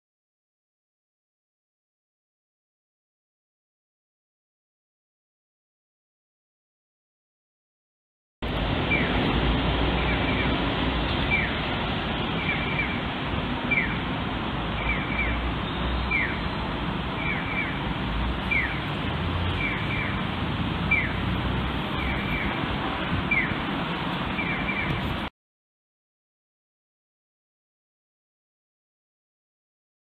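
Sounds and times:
jet rushing overhead: 0:08.4 - 0:25.3
bird chirping: 0:10.0 - 0:11.6, 0:12.3 - 0:13.0, 0:13.7 - 0:14.1, 0:14.8 - 0:18.9, 0:19.5 - 0:20.2, 0:20.8 - 0:21.2, 0:21.9 - 0:22.6, 0:23.3 - 0:23.6, 0:24.4 - 0:25.1.

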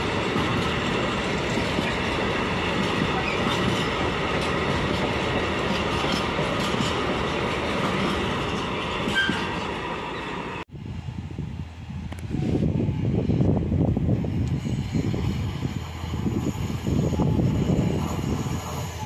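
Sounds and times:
freight train rumbling past: 0:00.0 - 0:19.0
train wheel squeal: 0:00.4 - 0:10.6, 0:14.2 - 0:19.0.

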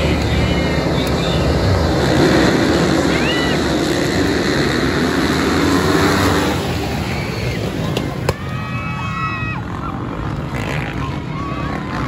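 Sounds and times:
dirt bike engines revving: 0:00.0 - 0:12.0.

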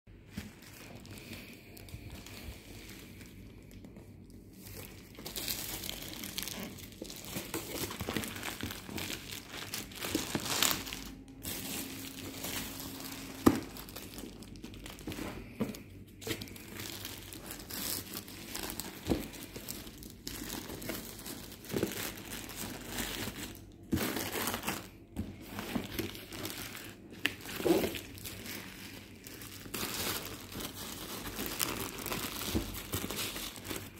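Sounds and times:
plastic wrap crinkling: 0:00.1 - 0:33.9
plastic tearing: 0:04.3 - 0:15.2.

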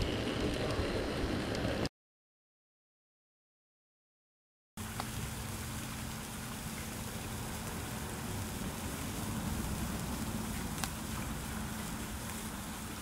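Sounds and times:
sparklers fizzing crackle: 0:04.8 - 0:13.0.

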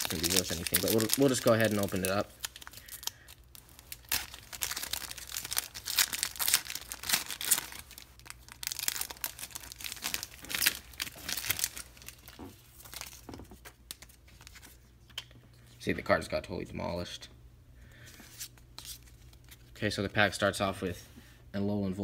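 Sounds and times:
foil wrapper crinkling and tearing: 0:00.0 - 0:14.6.

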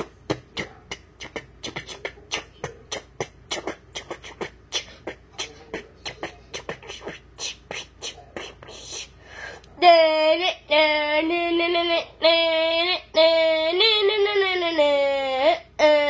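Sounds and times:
person beatboxing: 0:00.0 - 0:09.2.

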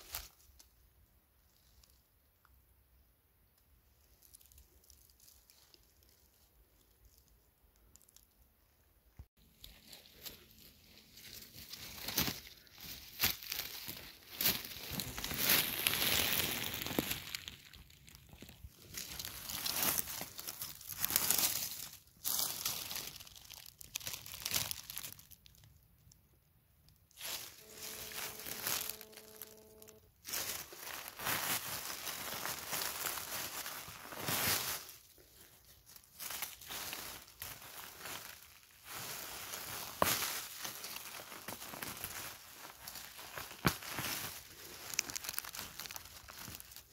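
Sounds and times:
footsteps crunching dry leaves: 0:09.4 - 0:25.2, 0:27.2 - 0:46.9
hand brushing through leaves: 0:09.5 - 0:17.8, 0:18.8 - 0:23.2, 0:27.2 - 0:35.2, 0:35.9 - 0:46.8.

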